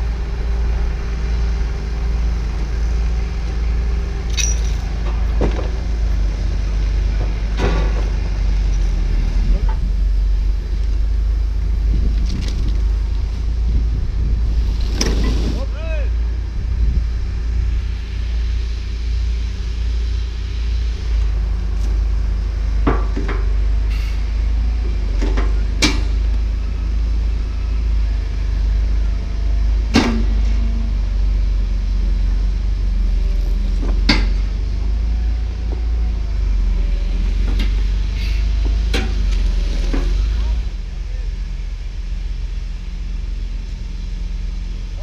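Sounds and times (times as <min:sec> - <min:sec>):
diesel engine rumbling: 0:00.0 - 0:45.0
sharp metal clanks: 0:04.3 - 0:04.8.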